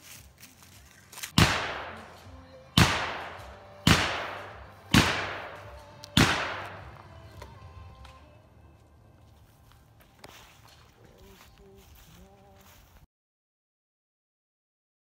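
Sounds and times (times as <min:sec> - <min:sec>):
gunshots with echo: 0:01.4 - 0:07.3.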